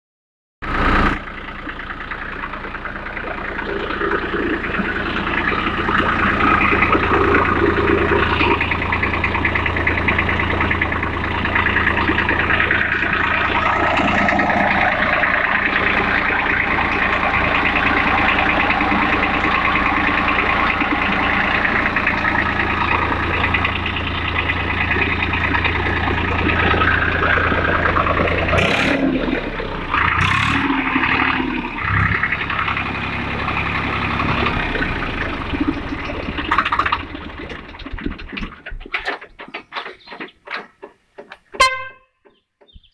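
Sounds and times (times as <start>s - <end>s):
tractor diesel engine running: 0.6s - 42.9s.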